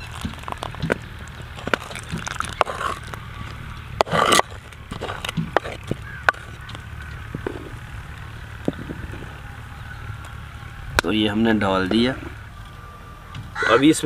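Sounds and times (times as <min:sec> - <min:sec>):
wooden spoon stirring porridge: 0:00.0 - 0:06.8.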